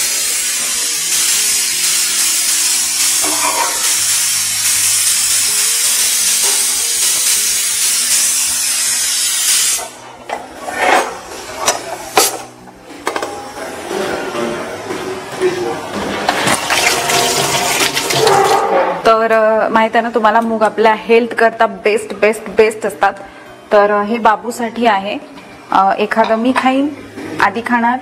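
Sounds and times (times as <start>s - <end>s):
food sizzling in a pan: 0.0s - 10.0s, 16.5s - 18.7s
steel utensils clinking: 3.1s - 4.0s.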